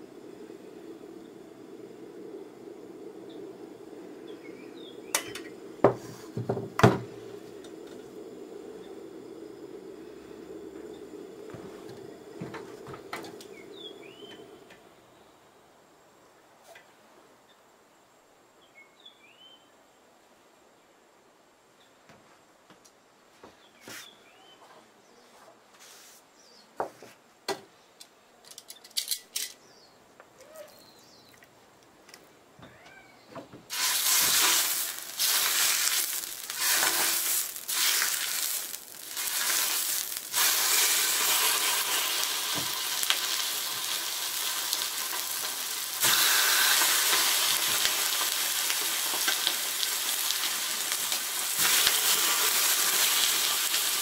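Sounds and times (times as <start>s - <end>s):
chicken sizzling on griddle: 33.7s - 54.0s.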